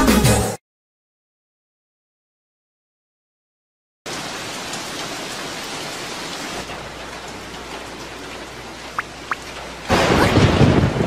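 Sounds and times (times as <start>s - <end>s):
cartoon rain falling: 4.1s - 11.0s.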